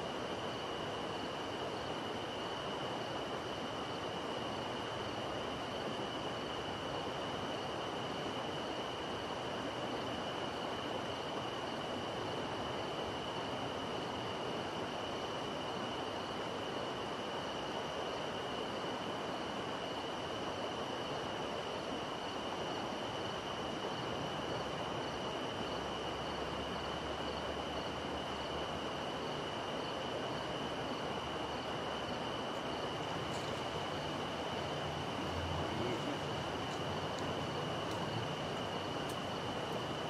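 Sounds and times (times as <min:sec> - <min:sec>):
night background hiss: 0:00.0 - 0:40.0
high-pitched insect trill: 0:25.0 - 0:40.0
faint chirps: 0:32.6 - 0:40.0.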